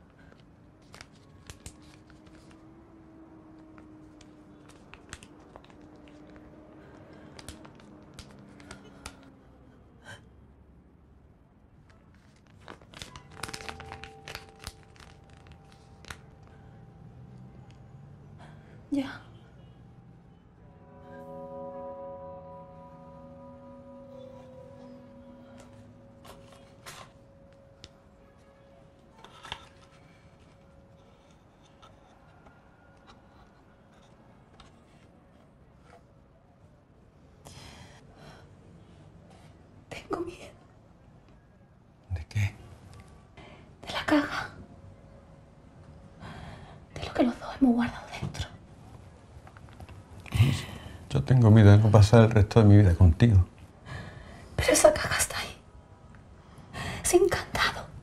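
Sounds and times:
paper rustling and crinkling: 0.2s - 2.6s, 12.0s - 16.5s
paper and pen rustles: 0.2s - 2.7s, 3.8s - 9.2s, 12.0s - 16.6s, 29.2s - 32.2s
soft music with held notes: 20.7s - 28.6s.

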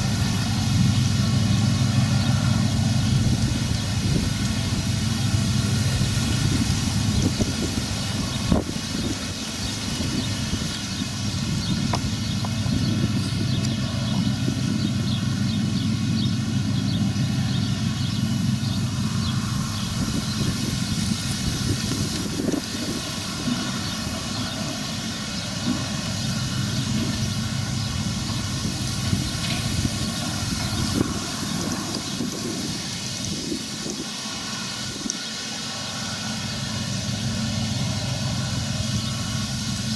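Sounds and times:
baler working: 0.0s - 39.9s
tractor diesel engine drone: 0.0s - 39.9s.

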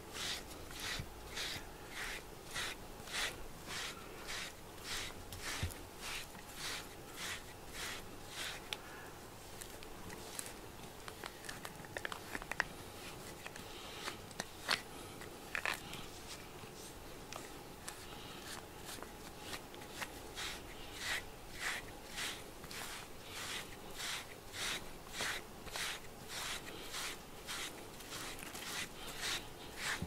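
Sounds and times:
brush clicks and scratches: 0.0s - 8.8s, 9.5s - 16.4s, 17.3s - 30.0s
brush strokes through cat fur: 0.0s - 10.6s, 17.8s - 30.0s.

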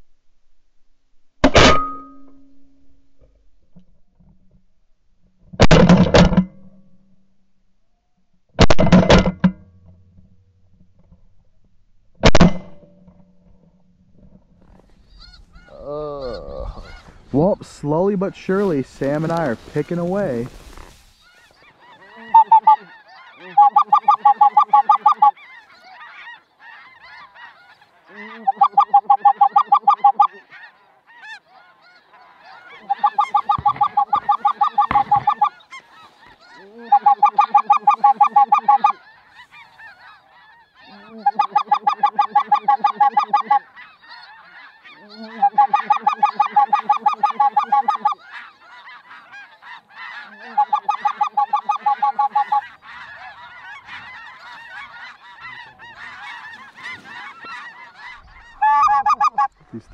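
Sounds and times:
goose honking: 14.6s - 59.9s.

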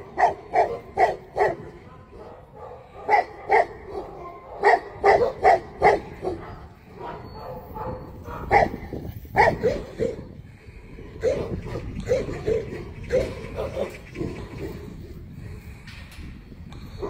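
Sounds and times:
dog barking: 0.1s - 10.2s, 11.2s - 14.0s.

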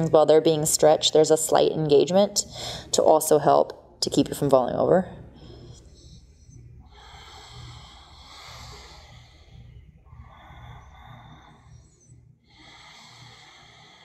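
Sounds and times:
person breathing through nose: 6.9s - 14.0s.

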